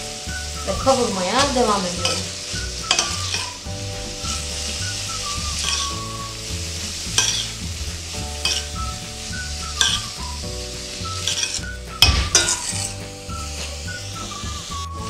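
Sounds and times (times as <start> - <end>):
onions sizzling in a pot: 0.0 - 15.0
metal spoon scraping a pot: 0.6 - 3.7, 7.2 - 7.6, 8.4 - 8.8, 11.2 - 14.4.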